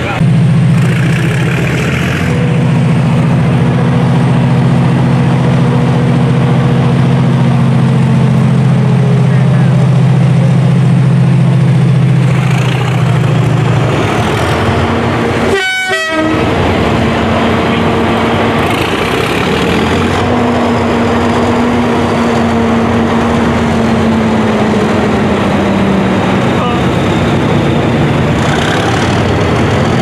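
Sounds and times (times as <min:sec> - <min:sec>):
diesel locomotive engines drone: 0:00.0 - 0:30.0.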